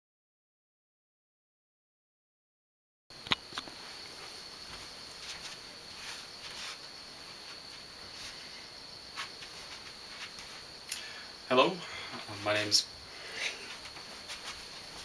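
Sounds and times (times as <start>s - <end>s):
high constant whine: 3.1s - 15.0s
steady hiss: 3.1s - 15.0s
soft rustles of person moving: 3.5s - 10.9s, 12.0s - 15.0s.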